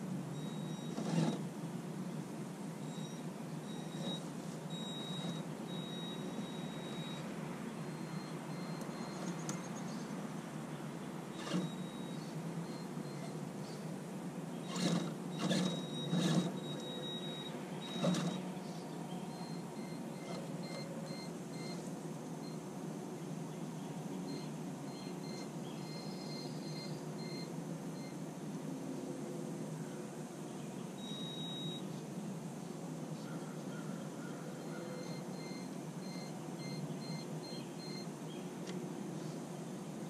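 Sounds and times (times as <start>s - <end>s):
electric motor whining: 11.3s - 12.4s, 14.6s - 18.5s.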